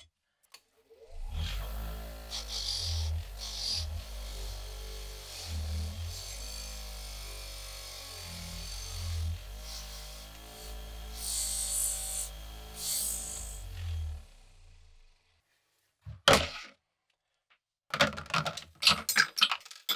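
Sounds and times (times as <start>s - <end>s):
bench grinder running: 1.0s - 15.3s.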